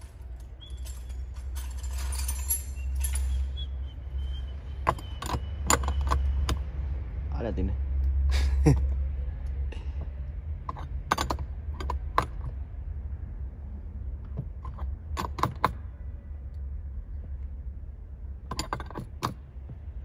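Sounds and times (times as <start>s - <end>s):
wrench clinking on metal: 0.0s - 3.6s, 4.8s - 6.6s
steady low hum: 0.0s - 20.0s.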